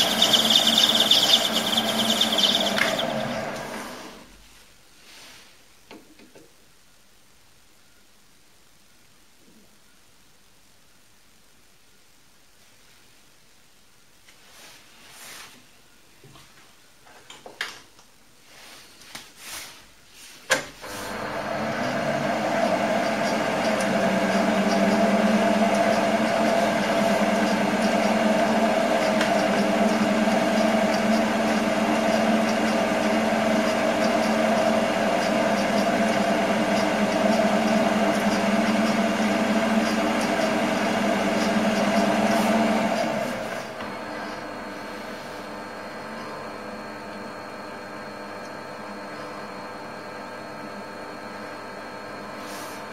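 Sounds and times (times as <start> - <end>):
lathe motor hum and whine: 0.0 - 4.2, 20.9 - 52.9.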